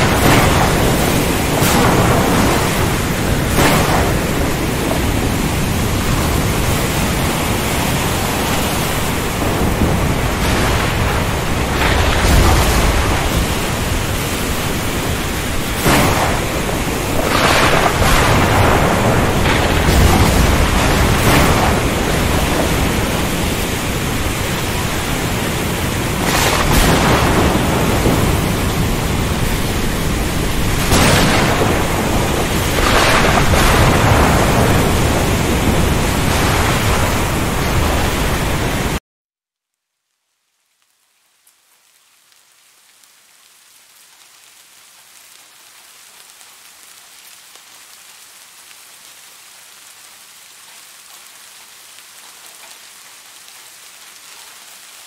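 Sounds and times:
steady rain hiss: 0:00.0 - 0:39.0, 0:39.8 - 0:55.0
thunderclaps and rolling rumbles: 0:00.0 - 0:39.0.

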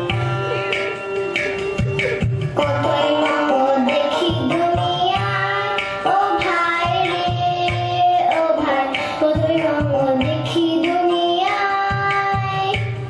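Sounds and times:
person singing: 0:02.6 - 0:12.9.

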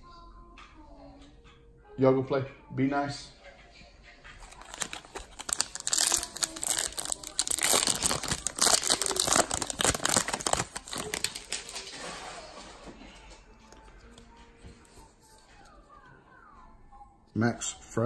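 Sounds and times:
wrapper crinkling and crackling: 0:04.4 - 0:12.8.

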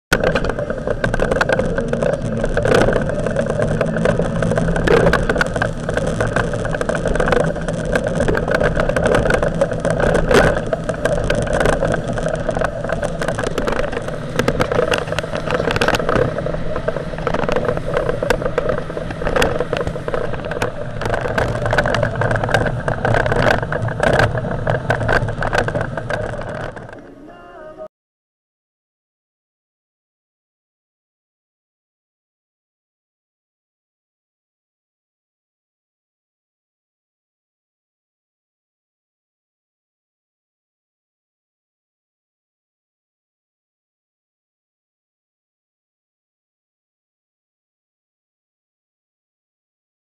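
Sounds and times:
outboard motor running: 0:00.1 - 0:27.8.

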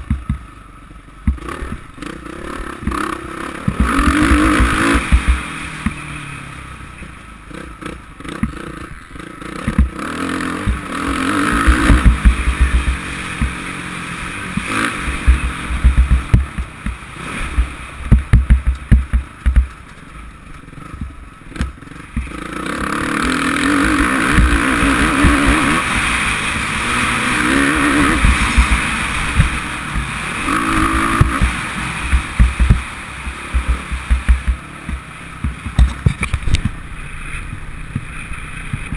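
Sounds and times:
wind thumps on microphone: 0:00.0 - 0:00.5, 0:03.6 - 0:06.0, 0:10.6 - 0:13.7, 0:14.5 - 0:19.8, 0:23.8 - 0:26.1, 0:27.8 - 0:36.8
motocross bike engine revving: 0:00.0 - 0:38.9.

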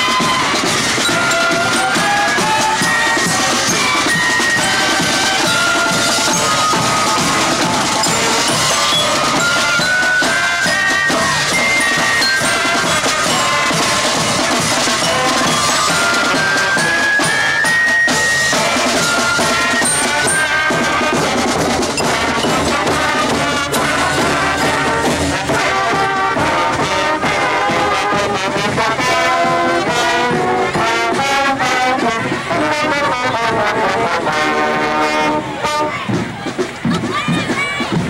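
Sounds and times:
marching band playing: 0:00.0 - 0:38.0
brass long held notes: 0:18.5 - 0:36.1.

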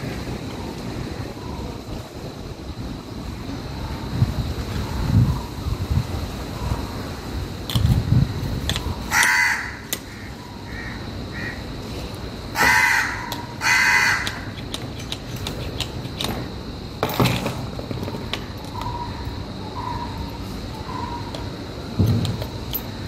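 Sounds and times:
crow cawing: 0:09.1 - 0:11.6, 0:12.6 - 0:14.5
metal parts clicking: 0:14.2 - 0:19.0, 0:20.7 - 0:23.0.

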